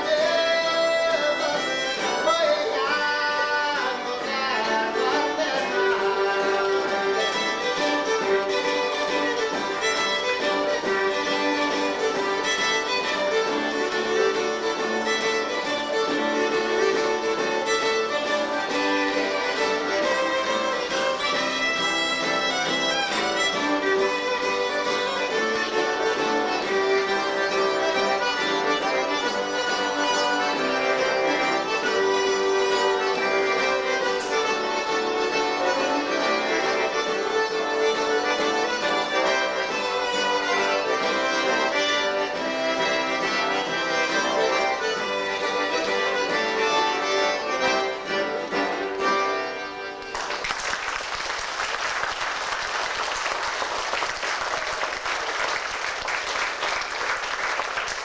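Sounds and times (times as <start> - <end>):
button accordion melody: 0.0 - 50.4
acoustic guitar: 0.0 - 50.6
fiddle: 0.0 - 58.0.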